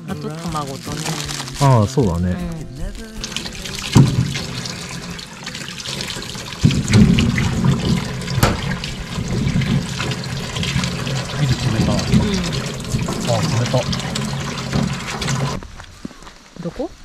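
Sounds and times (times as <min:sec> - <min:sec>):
tap water running into bowl: 0:00.2 - 0:02.2, 0:02.9 - 0:15.6.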